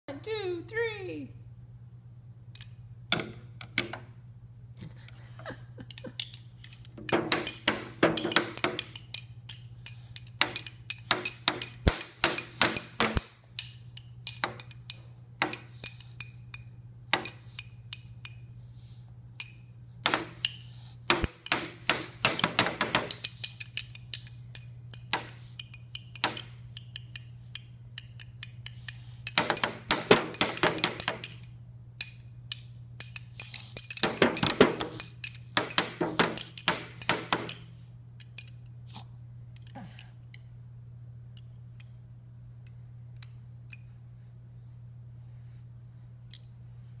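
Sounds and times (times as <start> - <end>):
toy drum struck with sticks: 7.0 - 9.6, 29.3 - 31.4, 33.8 - 37.6.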